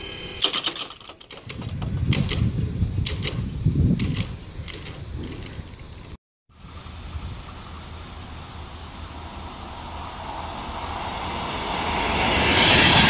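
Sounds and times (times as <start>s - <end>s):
barriers creaking and clicking: 0.4s - 6.2s.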